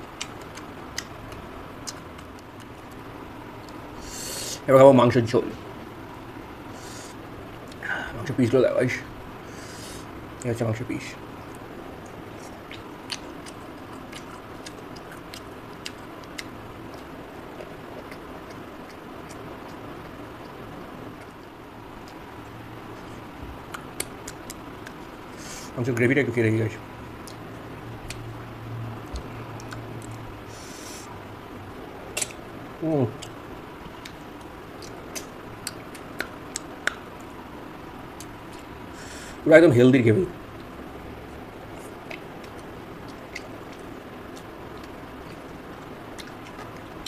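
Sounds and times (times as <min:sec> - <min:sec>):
person chewing with lip smacks: 0:00.0 - 0:03.8, 0:11.5 - 0:20.6, 0:22.9 - 0:25.1, 0:28.0 - 0:28.3, 0:29.0 - 0:30.3, 0:32.1 - 0:32.4, 0:33.2 - 0:37.1, 0:41.7 - 0:47.0
steady background hiss: 0:00.0 - 0:47.0.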